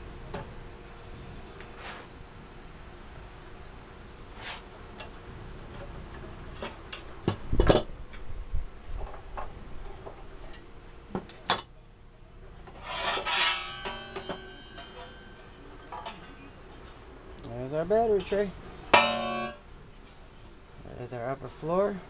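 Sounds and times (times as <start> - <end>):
loud metal scrape: 12.7 - 16.2
sheet steel ringing: 12.8 - 16.5, 18.1 - 19.8
metallic knocks and clanks: 13.0 - 16.2, 18.2 - 19.6.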